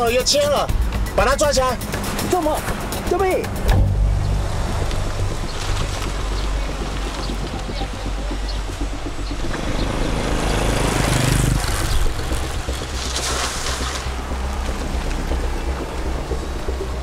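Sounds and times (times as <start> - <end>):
car pulling away: 1.8 - 17.0
small motorcycle riding: 4.6 - 17.0.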